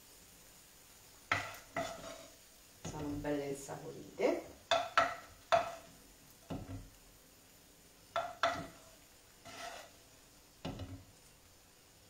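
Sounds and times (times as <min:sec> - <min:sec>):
utensil scraping frying pan: 0:01.3 - 0:03.3, 0:04.4 - 0:07.0, 0:08.2 - 0:11.1.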